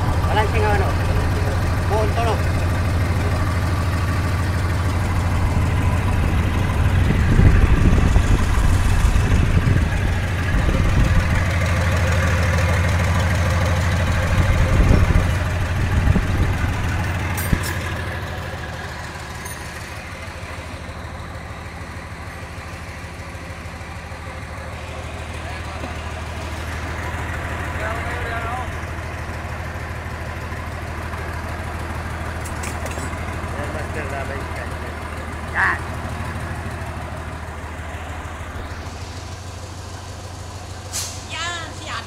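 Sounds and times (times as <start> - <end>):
diesel truck engine idling: 0.0 - 42.0.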